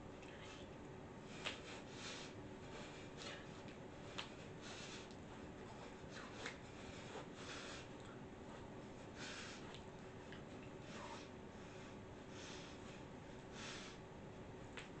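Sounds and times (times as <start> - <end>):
short noisy breaths: 1.2 - 9.8, 10.8 - 14.1.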